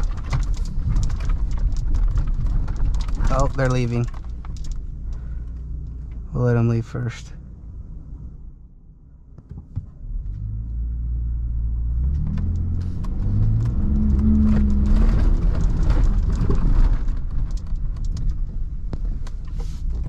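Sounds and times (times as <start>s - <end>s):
truck engine accelerating: 10.0s - 18.6s
mud and grit striking truck: 11.9s - 20.0s.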